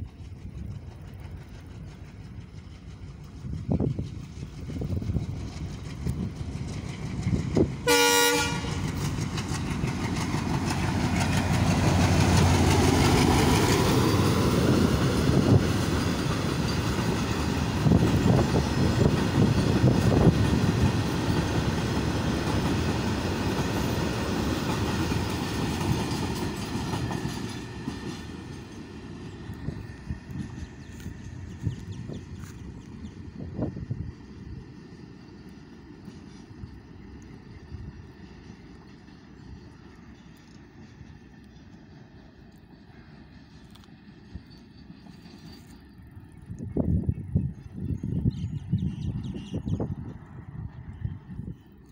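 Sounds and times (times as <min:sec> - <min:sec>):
train wheels clattering on rails: 0:00.0 - 0:34.6
locomotive engine rumble: 0:00.0 - 0:51.9
locomotive horn blast: 0:07.8 - 0:08.8.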